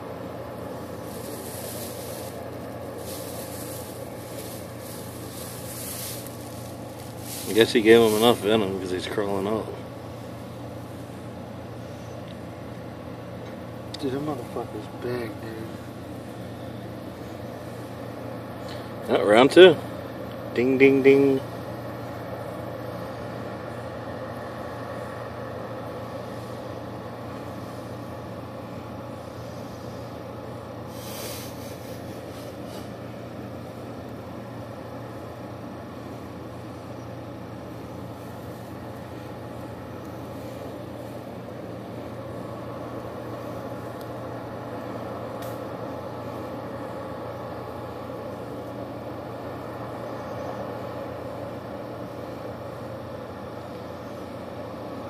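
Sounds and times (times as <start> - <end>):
machinery hum and rumble: 0.0 - 55.0
steady mechanical drone: 0.0 - 55.0.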